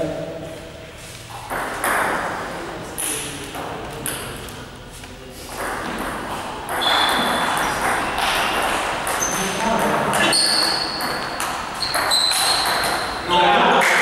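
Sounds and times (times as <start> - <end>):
ping pong ball clicking: 5.6 - 13.1.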